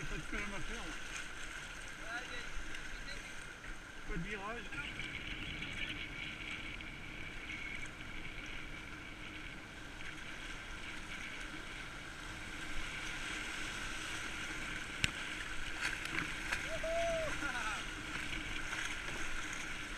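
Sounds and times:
turbulent river water rushing: 0:11.6 - 0:19.9.

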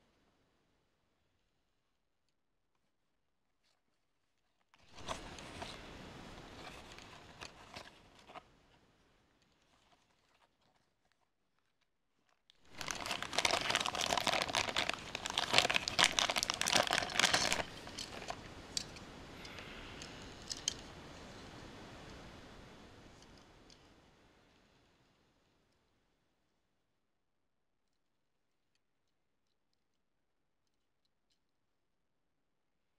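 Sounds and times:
plastic bag crinkling: 0:04.9 - 0:05.8, 0:09.6 - 0:19.0
cardboard box rustling and clicks: 0:06.4 - 0:08.4, 0:12.7 - 0:18.4.

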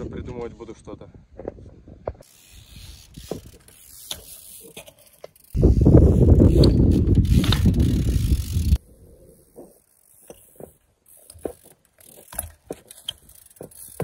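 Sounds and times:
bike tyres rattling: 0:01.4 - 0:14.0
bike ratchet clicking: 0:02.2 - 0:08.8, 0:09.4 - 0:14.0.

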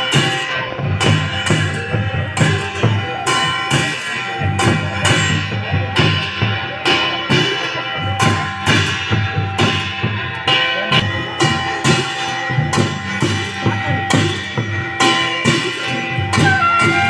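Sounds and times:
drums struck in a rhythm: 0:00.0 - 0:17.0
wind instrument holding notes: 0:15.8 - 0:17.0.

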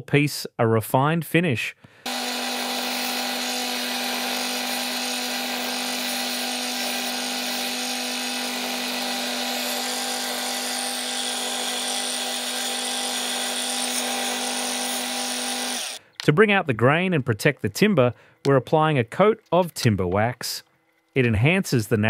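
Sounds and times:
belt sander sanding wood: 0:02.1 - 0:16.0.

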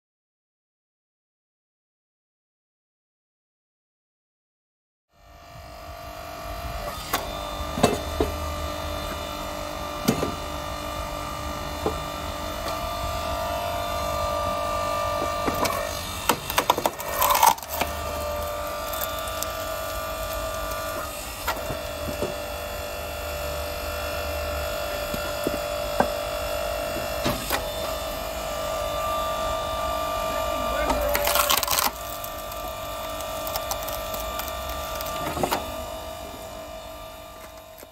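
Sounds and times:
hydraulic pump motor whine: 0:05.1 - 0:37.9
log cracking and splintering: 0:15.6 - 0:22.2, 0:30.9 - 0:35.7.

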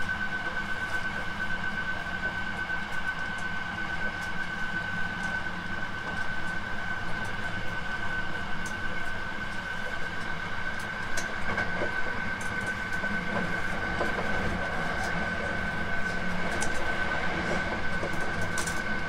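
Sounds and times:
train wheels rumbling on rail: 0:00.0 - 0:19.0.

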